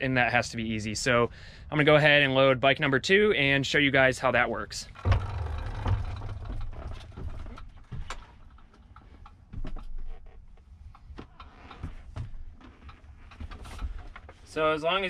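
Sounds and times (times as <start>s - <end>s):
tyres rumbling on ramp: 4.8s - 8.1s
knocks and clicks: 4.9s - 9.9s.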